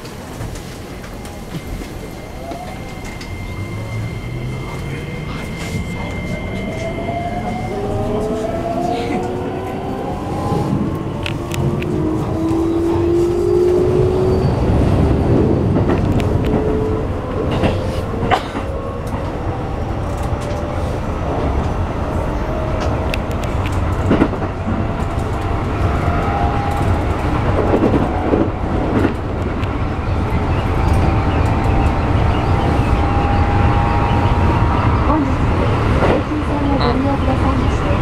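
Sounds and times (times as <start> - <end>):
wheels rumbling on rails: 0.0 - 38.0
train motor whine: 1.0 - 8.7.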